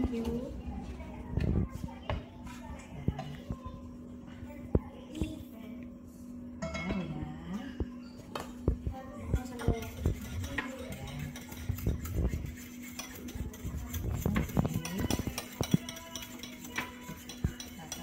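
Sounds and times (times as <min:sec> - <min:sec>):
steady low hum: 0:00.0 - 0:18.0
metal utensil scraping a bowl: 0:09.4 - 0:18.0.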